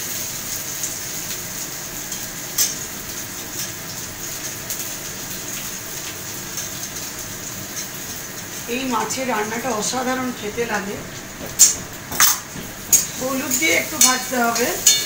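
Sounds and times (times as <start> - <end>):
food sizzling in a frying pan: 0.0 - 15.0.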